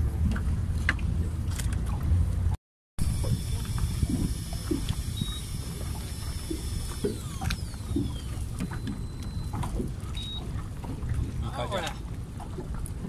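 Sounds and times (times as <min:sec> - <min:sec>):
wind and water rumble: 0:00.0 - 0:13.0
fishing reel clicking and whirring: 0:03.0 - 0:10.4
short high beep: 0:10.2 - 0:10.4.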